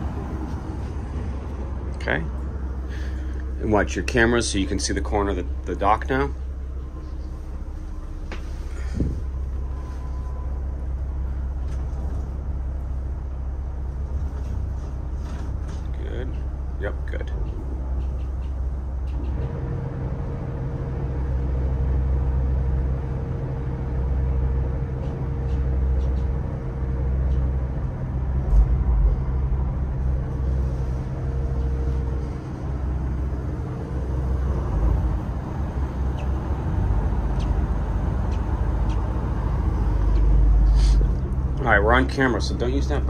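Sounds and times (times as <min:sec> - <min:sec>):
bow thruster whining: 0:00.0 - 0:43.0
diesel engine low rumble: 0:00.0 - 0:43.0.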